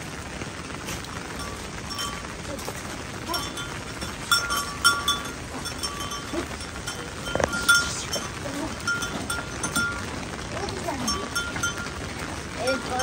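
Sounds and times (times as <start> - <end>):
rain hissing: 0.0 - 13.0.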